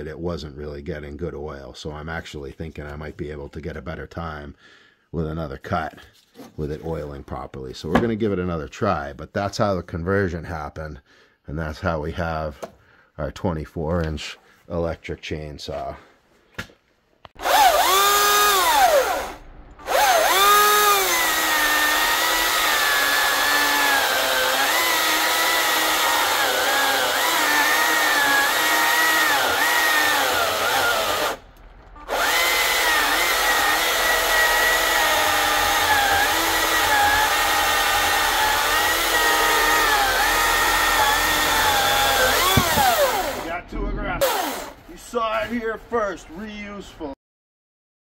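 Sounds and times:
chainsaw cutting log: 17.4s - 43.6s, 44.2s - 44.8s.

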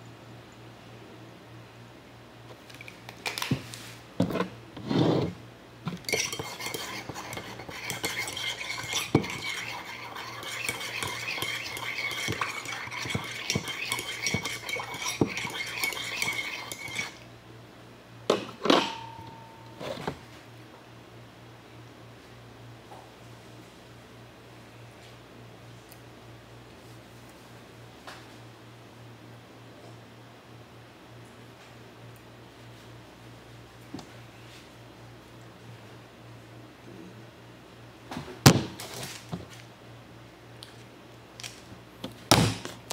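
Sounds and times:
spoon clinking in ceramic mug: 6.0s - 17.2s.

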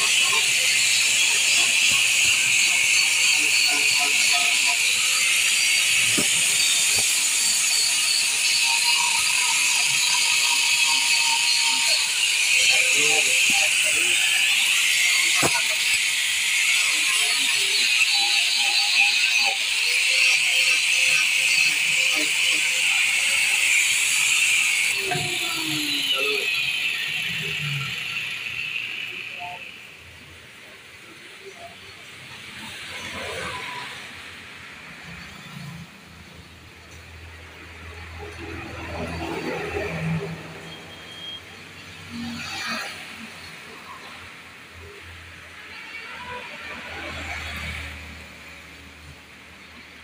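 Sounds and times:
angle grinder buffing rubber: 0.0s - 30.7s.

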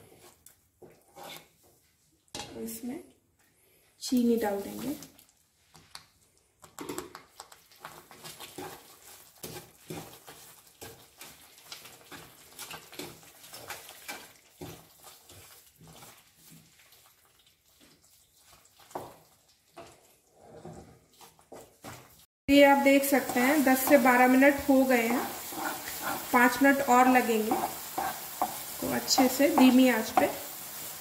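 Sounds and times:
wooden spatula stirring: 0.0s - 2.7s, 6.6s - 31.0s
thick mixture bubbling and popping: 5.0s - 22.3s.

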